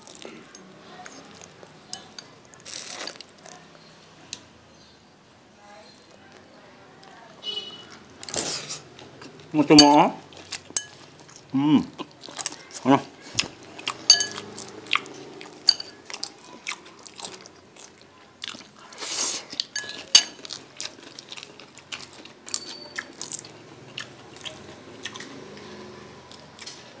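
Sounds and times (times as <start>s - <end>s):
chewing and crunching food: 0.0s - 4.4s, 7.9s - 27.0s
cutlery clinking on plates: 9.7s - 10.0s, 10.7s - 11.1s, 14.0s - 14.6s, 15.6s - 16.2s, 19.7s - 20.6s.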